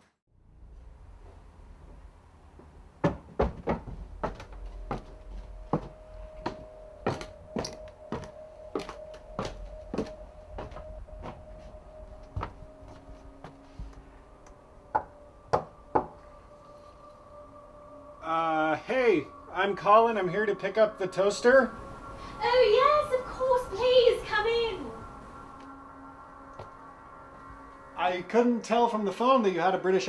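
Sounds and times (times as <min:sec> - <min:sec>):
footsteps on hard steps: 0:02.6 - 0:14.1
knocks on a door: 0:03.0 - 0:04.4
faint steady tone: 0:04.0 - 0:29.8.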